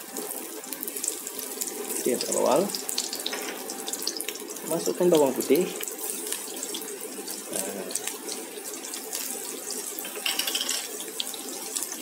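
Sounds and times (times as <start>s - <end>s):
garlic frying in hot oil: 0.0s - 12.0s.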